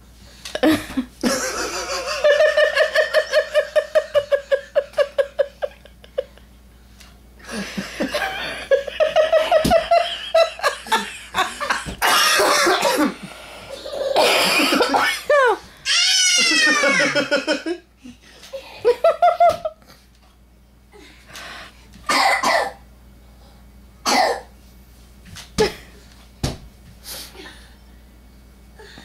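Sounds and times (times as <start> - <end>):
person laughing hard: 0.6 - 6.5, 7.4 - 13.2, 14.0 - 17.9.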